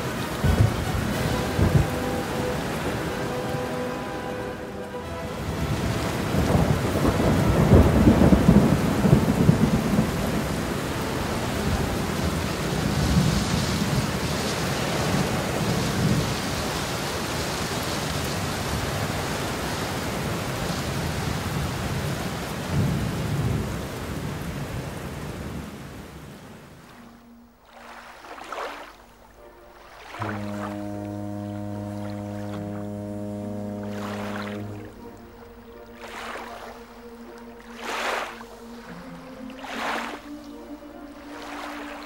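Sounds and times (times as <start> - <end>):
steady rain: 0.0 - 42.0
thunder rolling: 0.1 - 3.1, 5.6 - 14.2.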